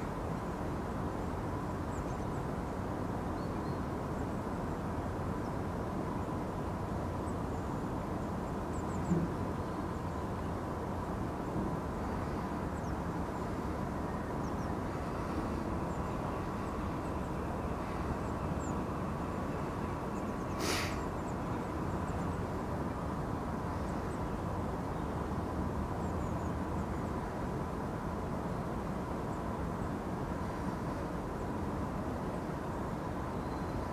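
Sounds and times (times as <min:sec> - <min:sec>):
distant city traffic rumble: 0:00.0 - 0:33.9.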